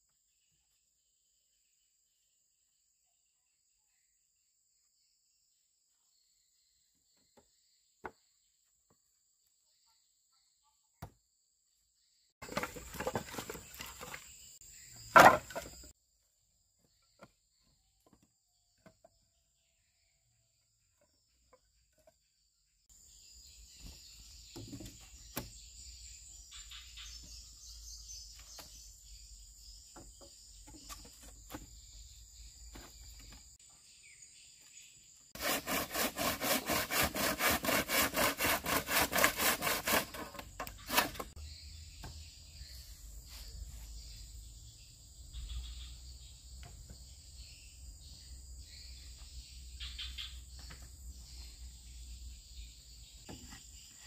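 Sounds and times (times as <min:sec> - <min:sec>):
loud wooden thunk: 0:15.1 - 0:15.9
rough scraping and rubbing: 0:35.4 - 0:41.4.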